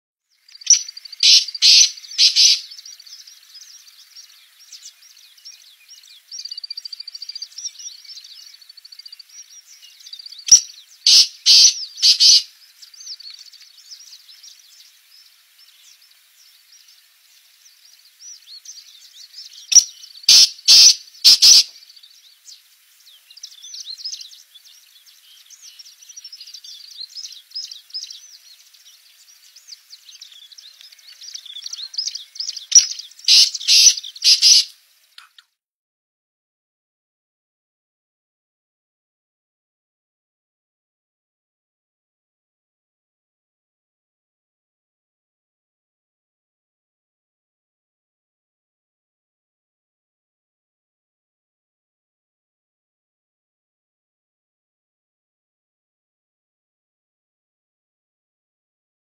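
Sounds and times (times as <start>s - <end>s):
small birds chirping: 0.2s - 35.6s
francolin calling harshly: 0.4s - 8.7s, 9.3s - 13.2s, 18.3s - 22.0s, 29.6s - 34.7s.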